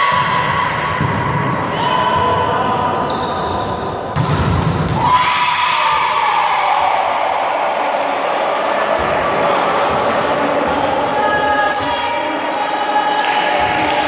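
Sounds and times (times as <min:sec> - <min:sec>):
shoe squeals: 0:00.6 - 0:05.2
volleyball being hit: 0:04.2 - 0:05.1.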